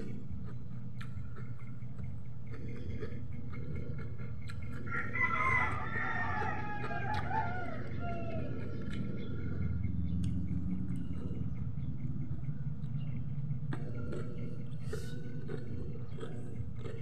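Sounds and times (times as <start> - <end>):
steady low hum: 0.0 - 17.0
rooster crowing: 4.9 - 8.8.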